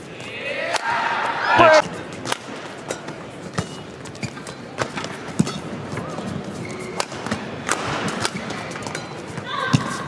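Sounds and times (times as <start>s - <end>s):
rackets striking shuttlecock: 1.8s - 10.0s
shoe squeaks on court: 3.5s - 7.1s.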